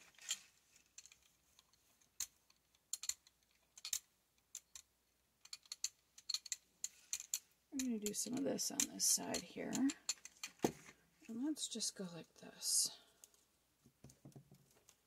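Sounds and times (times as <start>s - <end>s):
roller sticky clicks and crackles: 0.0s - 10.9s.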